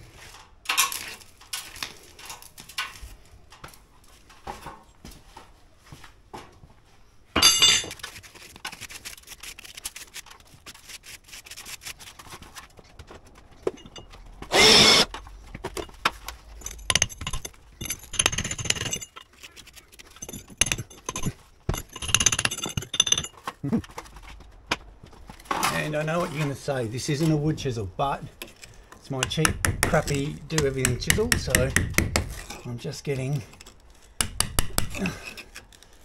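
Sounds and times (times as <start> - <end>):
hand tool scraping brick: 15.8 - 24.0, 28.4 - 36.0.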